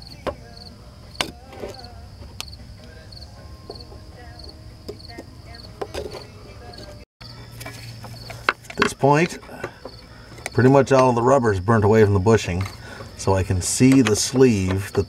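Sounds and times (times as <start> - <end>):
pry bar scraping metal: 12.4 - 15.0.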